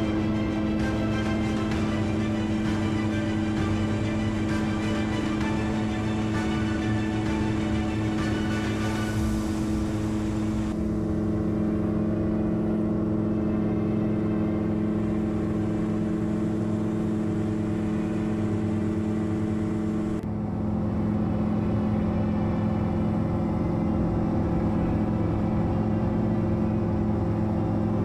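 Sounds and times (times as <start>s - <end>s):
gyroplane engine and propeller drone: 0.0s - 28.0s.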